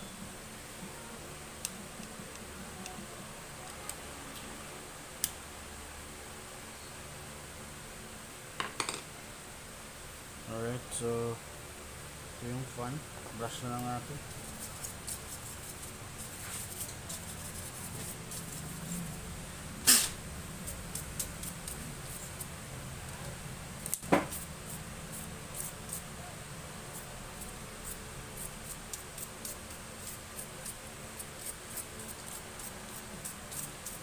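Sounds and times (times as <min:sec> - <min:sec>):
paintbrush bristles sweeping: 0:14.3 - 0:19.2.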